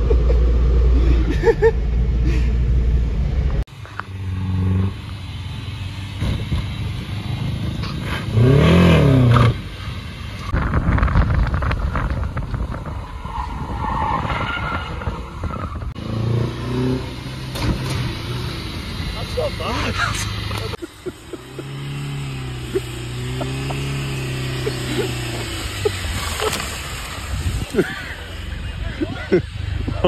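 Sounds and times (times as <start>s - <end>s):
car driving: 0.0s - 30.0s
car engine revving: 0.0s - 30.0s
car engine idling: 17.0s - 30.0s.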